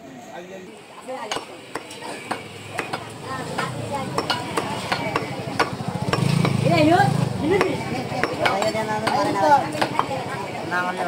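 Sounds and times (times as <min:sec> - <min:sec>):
cleaver chopping on wooden block: 0:01.3 - 0:06.6, 0:07.6 - 0:10.1.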